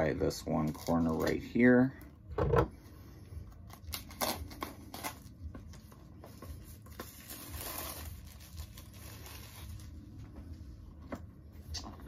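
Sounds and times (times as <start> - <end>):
packaging rustling tear: 3.6 - 5.4, 6.9 - 10.0.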